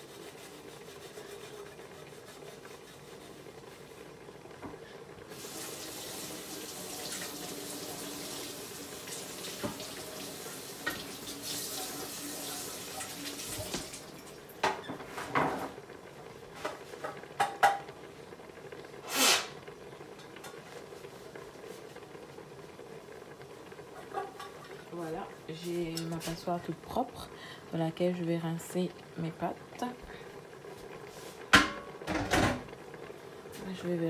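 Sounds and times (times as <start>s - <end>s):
tap running into sink: 9.1s - 12.0s, 12.9s - 14.0s
colander knocks and clatters: 14.6s - 15.8s, 31.5s - 32.8s.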